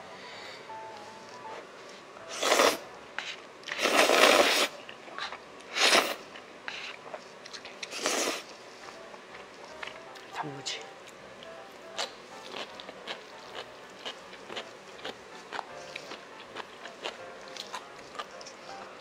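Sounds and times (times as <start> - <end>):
person slurping noodles: 2.3 - 2.8, 3.7 - 4.8, 5.7 - 6.9, 7.9 - 8.5.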